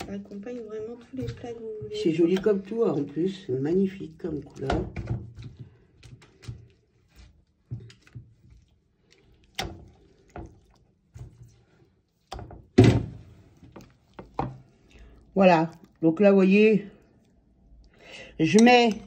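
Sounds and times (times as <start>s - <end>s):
kitchen knocks and thuds: 4.5s - 5.8s, 12.4s - 13.3s.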